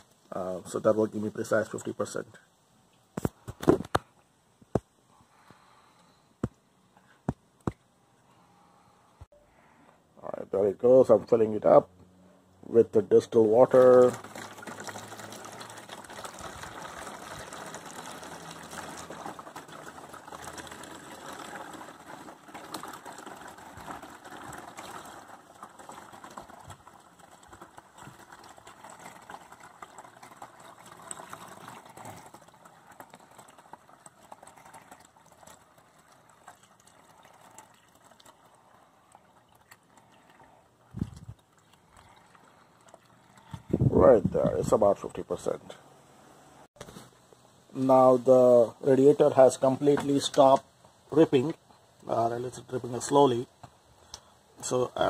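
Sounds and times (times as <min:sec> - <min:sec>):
water trickling through funnel: 0:12.2 - 0:45.5.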